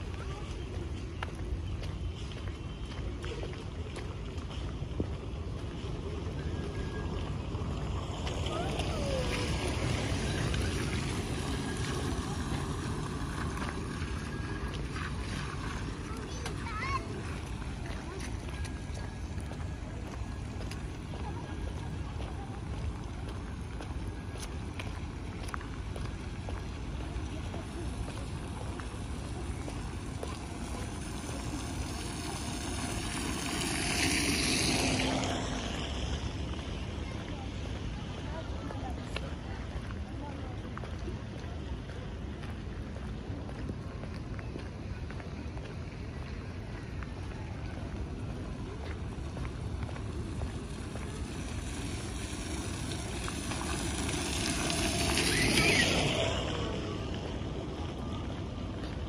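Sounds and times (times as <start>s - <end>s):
tyres passing over wet paving: 0.0s - 59.0s
rain hiss: 29.3s - 36.2s, 50.1s - 57.6s.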